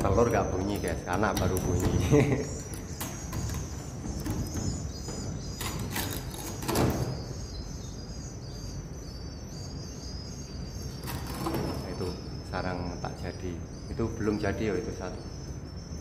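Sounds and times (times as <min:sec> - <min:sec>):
net pole knocking on wooden beams: 0:00.0 - 0:07.2.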